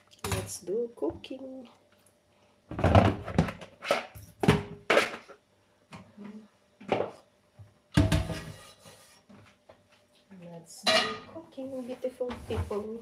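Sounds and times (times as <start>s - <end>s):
colander and bowl clattering in sink: 7.9s - 8.8s.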